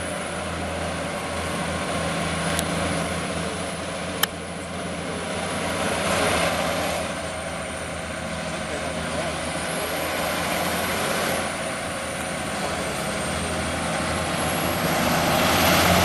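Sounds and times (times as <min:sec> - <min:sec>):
truck diesel engines droning: 0:00.0 - 0:16.0.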